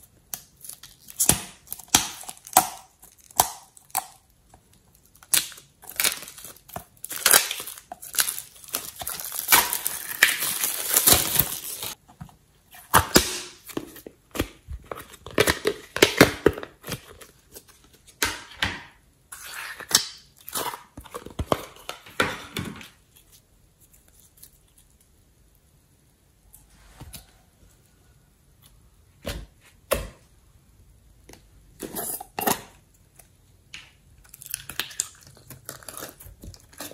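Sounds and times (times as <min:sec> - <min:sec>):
plastic wrap crinkling and tearing: 0:00.3 - 0:12.0, 0:34.3 - 0:36.9.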